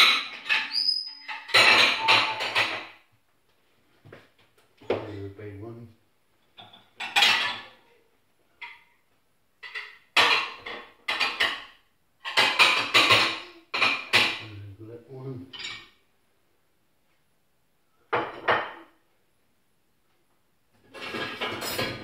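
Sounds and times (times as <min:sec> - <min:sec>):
crockery and cutlery clattering: 0:00.0 - 0:03.1, 0:06.4 - 0:07.9, 0:09.6 - 0:14.6, 0:15.5 - 0:16.0, 0:20.8 - 0:22.0.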